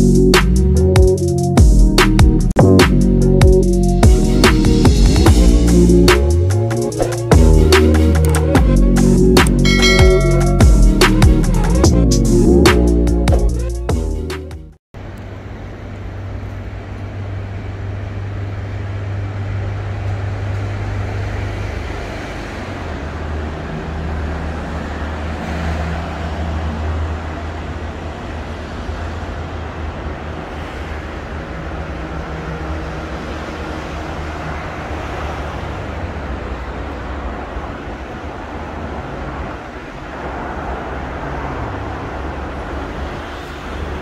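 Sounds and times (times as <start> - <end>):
road traffic engine hum: 0.0 - 44.0.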